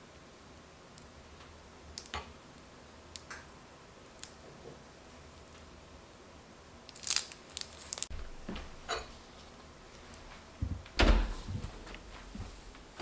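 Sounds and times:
oven door clunk and rattle: 10.7 - 11.4.

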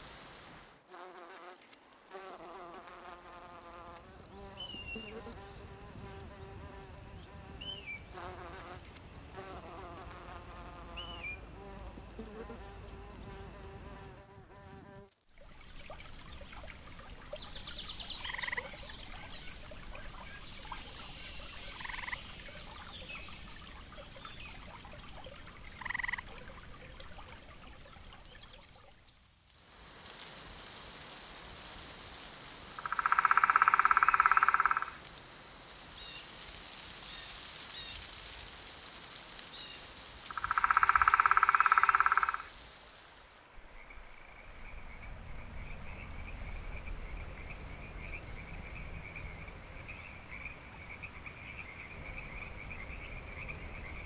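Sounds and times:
fly buzzing: 0.9 - 15.2
insect chirring: 1.0 - 15.2, 17.9 - 19.5, 32.8 - 35.0, 40.3 - 42.5, 43.8 - 54.0.

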